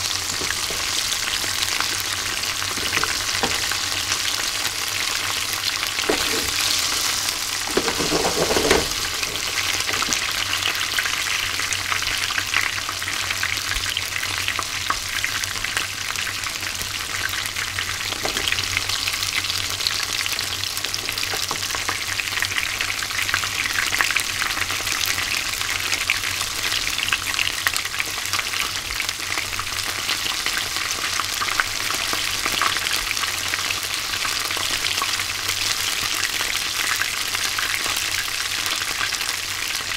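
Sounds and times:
fish deep-frying in oil: 0:00.0 - 0:39.9
heavy clunk: 0:06.0 - 0:07.0, 0:07.7 - 0:10.2.

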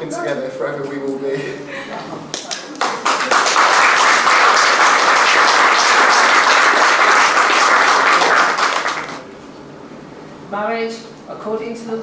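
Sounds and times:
people applauding: 0:02.3 - 0:09.3.

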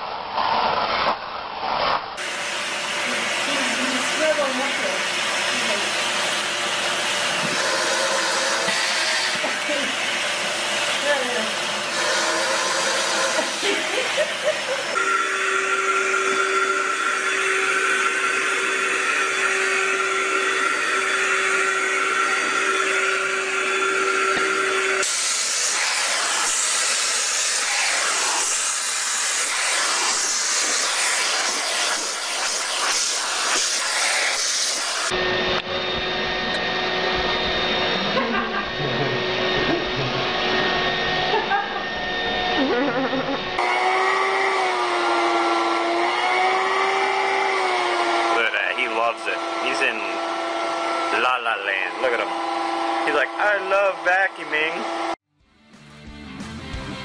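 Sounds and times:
vacuum cleaner suction hiss: 0:00.4 - 0:42.7, 0:43.6 - 0:55.0
high motor whine: 0:02.2 - 0:55.2.

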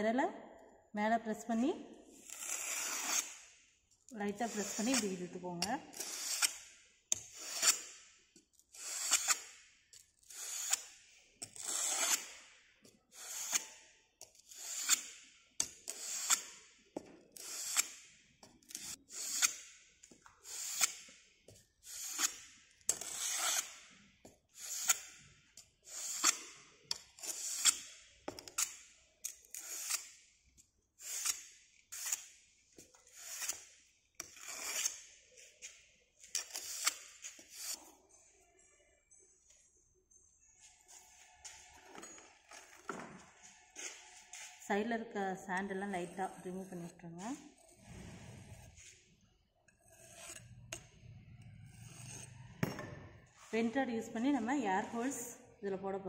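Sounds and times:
trowel scraping sand: 0:02.2 - 0:03.4, 0:04.4 - 0:05.2, 0:07.2 - 0:07.9, 0:08.7 - 0:09.5, 0:11.6 - 0:12.4.

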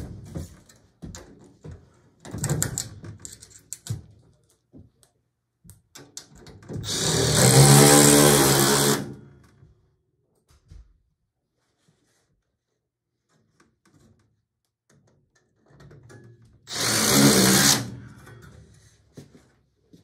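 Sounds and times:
power drill running: 0:06.8 - 0:09.2, 0:16.7 - 0:18.2.

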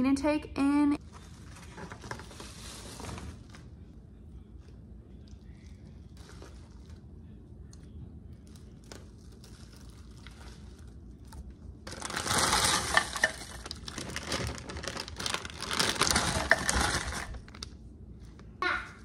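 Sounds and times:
plastic bag crinkling: 0:08.4 - 0:17.7
frozen vegetables clattering into pot: 0:11.9 - 0:17.5.

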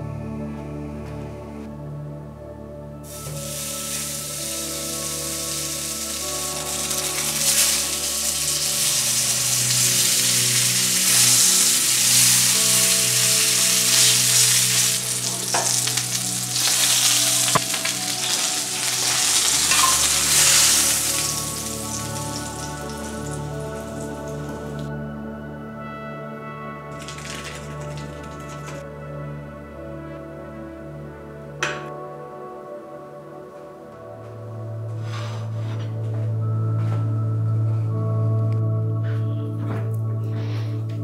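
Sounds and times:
soft music: 0:00.0 - 0:41.0
steak sizzling in a skillet: 0:03.2 - 0:24.2.

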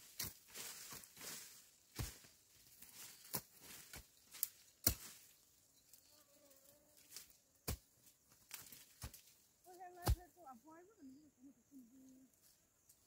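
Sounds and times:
hoes chopping dry soil: 0:00.0 - 0:05.4, 0:07.0 - 0:10.4.

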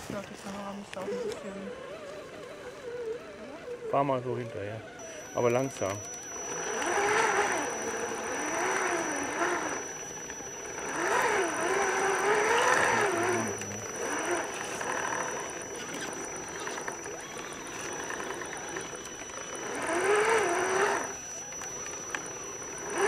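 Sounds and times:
electric motor whining: 0:00.0 - 0:23.0
thin steady high tone: 0:05.0 - 0:23.0.

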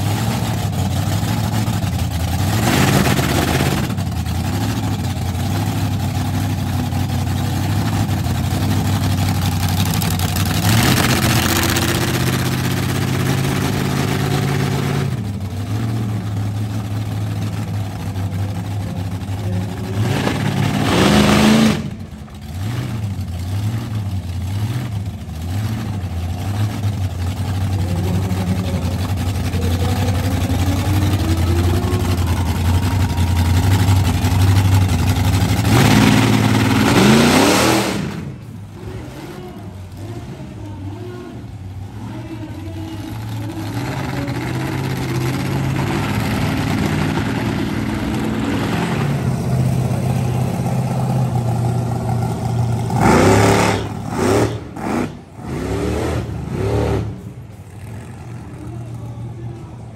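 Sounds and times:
monster truck engine idling and revving: 0:00.0 - 0:59.9.

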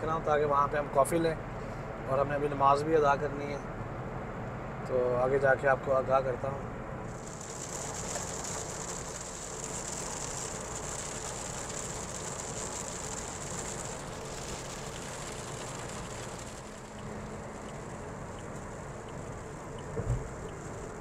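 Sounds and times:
car road and engine noise: 0:00.0 - 0:21.0
high hiss: 0:07.0 - 0:21.0.

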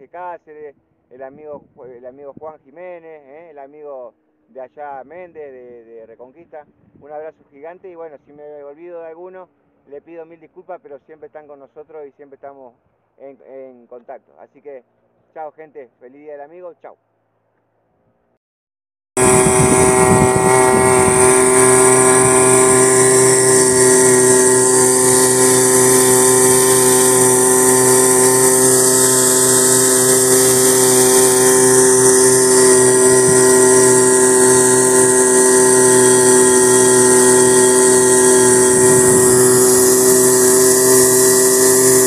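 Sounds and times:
outboard motor running: 0:19.2 - 0:42.0.

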